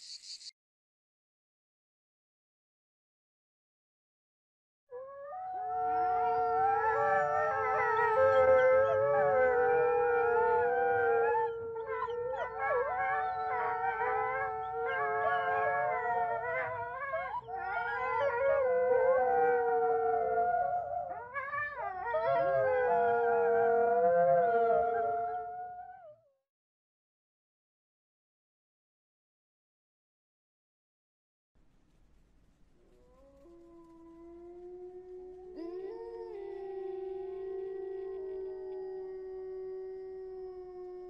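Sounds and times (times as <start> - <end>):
wolves howling: 4.9 - 26.1, 32.8 - 41.0.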